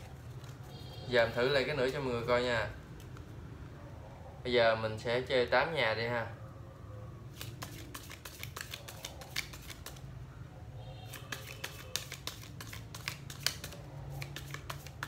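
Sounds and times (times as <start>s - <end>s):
playing cards being shuffled: 7.3s - 10.0s, 11.1s - 15.0s.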